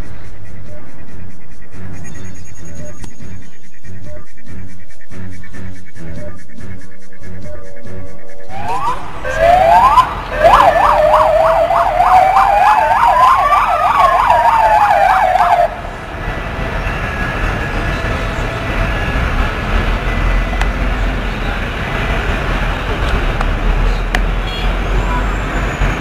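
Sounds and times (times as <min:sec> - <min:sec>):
siren wailing: 0:07.4 - 0:20.9
siren fast yelp: 0:07.5 - 0:15.8.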